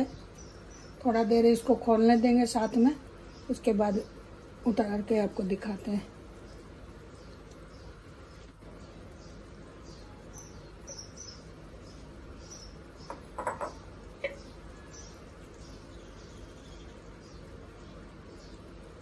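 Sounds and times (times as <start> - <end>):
curry simmering hiss: 0.0 - 19.0
soft high chirps: 9.8 - 17.4
knocks: 13.1 - 14.4.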